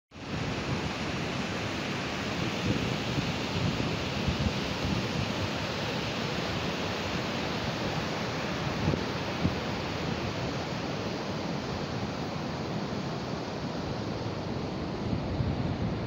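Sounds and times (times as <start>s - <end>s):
river rushing: 0.2s - 16.0s
wind bumps on microphone: 15.0s - 16.0s.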